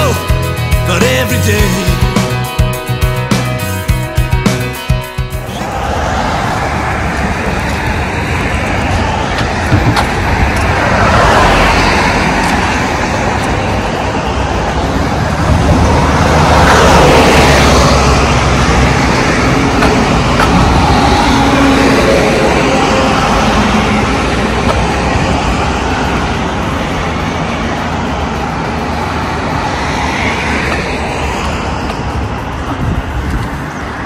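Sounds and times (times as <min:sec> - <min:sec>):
highway traffic passing: 0:00.0 - 0:34.0.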